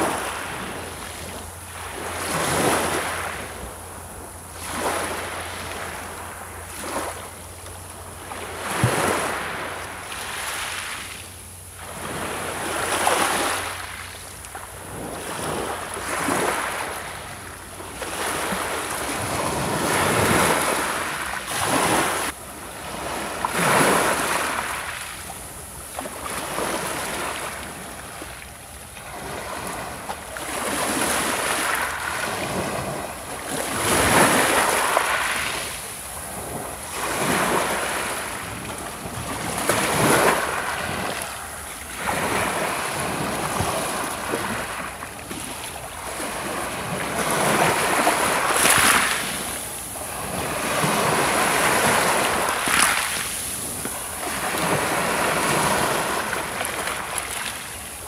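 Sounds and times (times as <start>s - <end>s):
sea waves breaking on pebble beach: 8.3s - 11.0s, 11.8s - 14.0s, 17.8s - 25.1s, 29.1s - 57.8s.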